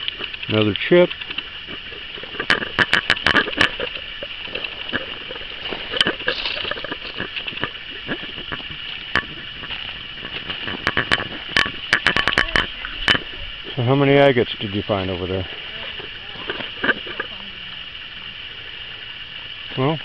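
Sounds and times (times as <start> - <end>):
footsteps on gravel: 0.0 - 13.9
steady high-pitched whine: 0.0 - 20.0.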